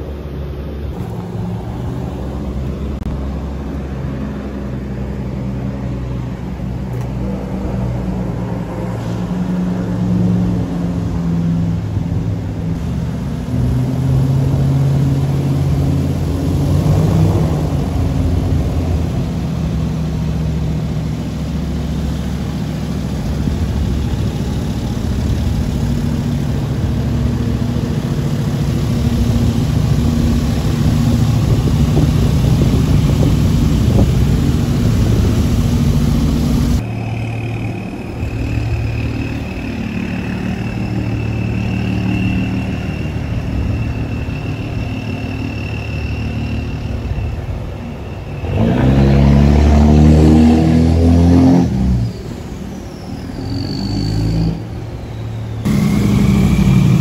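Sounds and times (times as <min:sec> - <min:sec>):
airboat engine and propeller: 0:00.0 - 0:51.2, 0:54.6 - 0:57.0
truck engine wading through water: 0:00.0 - 0:57.0
faint high whine: 0:17.3 - 0:49.4, 0:52.0 - 0:57.0.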